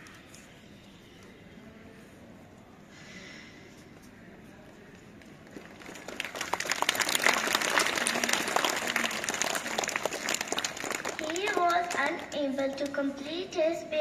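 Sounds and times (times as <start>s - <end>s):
children applauding: 5.6s - 12.3s.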